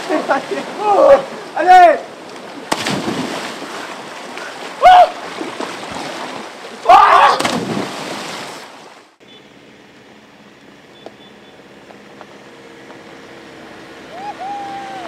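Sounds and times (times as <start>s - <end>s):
loud water splash: 2.6s - 9.0s
person shouting: 4.8s - 5.2s, 6.8s - 7.4s, 14.1s - 15.0s
vans driving on gravel: 9.4s - 15.0s.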